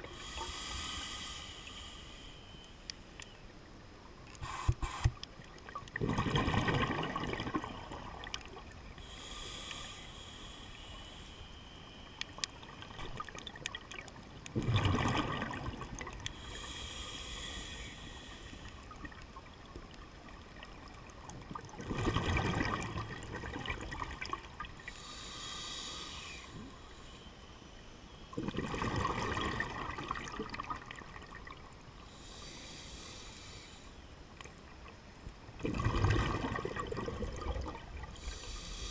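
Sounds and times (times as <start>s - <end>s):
hissing inhale through regulator: 0.0s - 3.1s, 4.3s - 5.3s, 7.5s - 12.9s, 16.0s - 19.2s, 24.8s - 28.4s, 32.0s - 34.2s, 38.0s - 38.9s
bubbling exhalation underwater: 6.0s - 8.0s, 14.6s - 16.0s, 21.8s - 23.8s, 28.4s - 30.6s, 35.6s - 37.9s.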